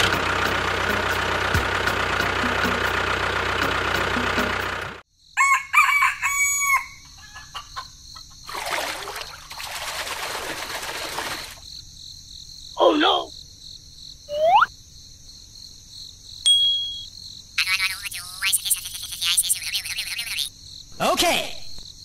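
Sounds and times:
insects chirping: 0:05.0 - 0:22.0
rooster crowing: 0:05.4 - 0:07.9.

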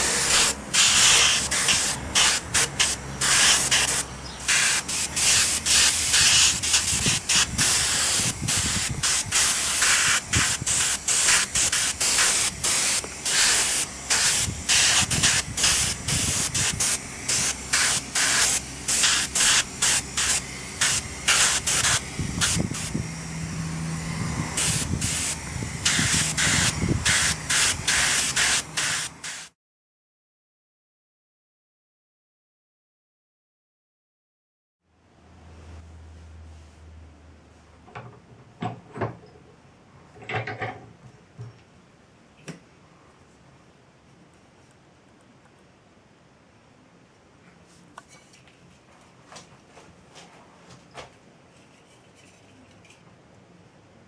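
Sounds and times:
airbrush spraying hiss: 0:00.0 - 0:29.6.

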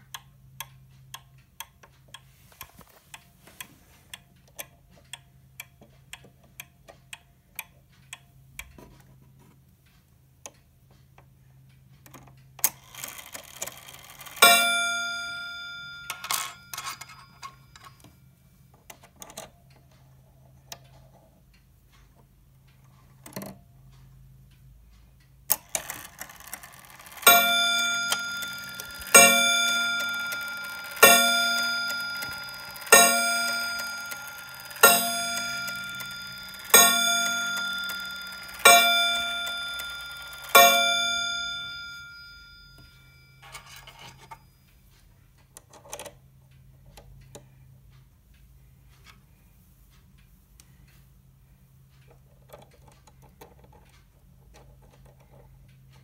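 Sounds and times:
pendulum clock ticking: 0:00.0 - 0:56.0
clock gong strikes: 0:27.3 - 0:43.3.

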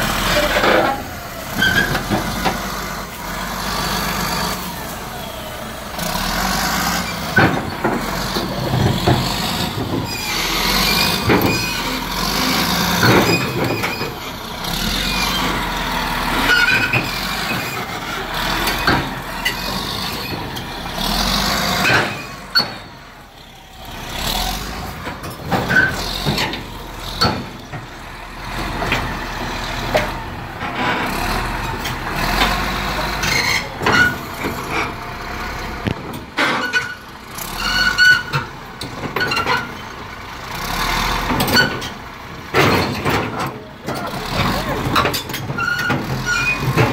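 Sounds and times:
heavy diesel equipment running: 0:00.0 - 0:46.9
short squeaks: 0:00.3 - 0:02.1, 0:10.0 - 0:14.3, 0:15.1 - 0:17.8, 0:21.8 - 0:23.0, 0:25.0 - 0:26.5, 0:32.4 - 0:34.4, 0:36.4 - 0:38.5, 0:41.4 - 0:42.0, 0:45.2 - 0:46.8.

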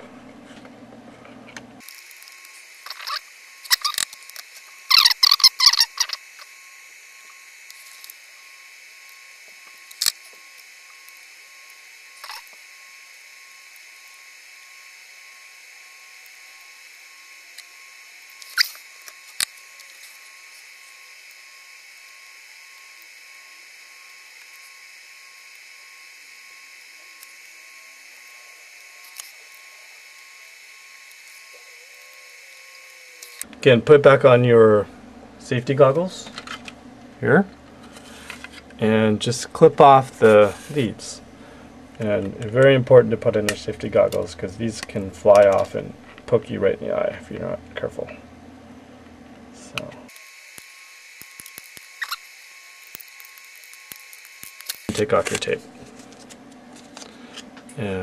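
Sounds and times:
thin high whine: 0:00.0 - 0:58.0
circuit board clicks and rattles: 0:51.2 - 0:52.2.

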